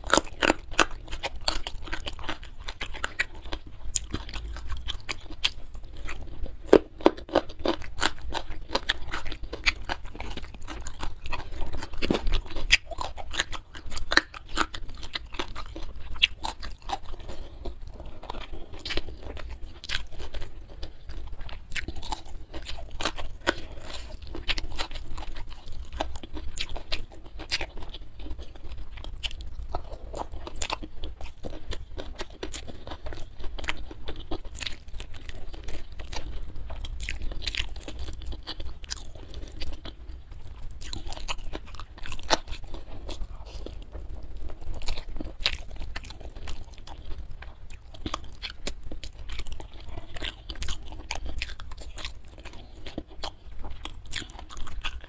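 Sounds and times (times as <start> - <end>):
person chewing and crunching food: 0.0 - 55.0.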